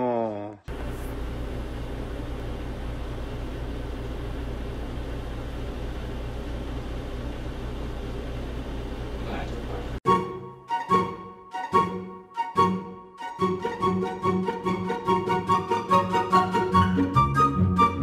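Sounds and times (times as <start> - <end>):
low hum with hiss: 0.0 - 10.0
background music: 10.1 - 18.0.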